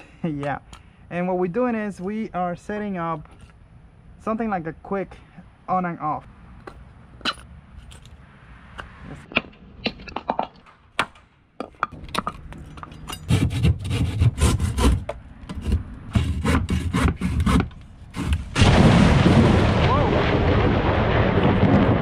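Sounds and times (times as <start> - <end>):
tools clicking and knocking: 9.3 - 13.4
handsaw cutting a board: 13.2 - 18.5.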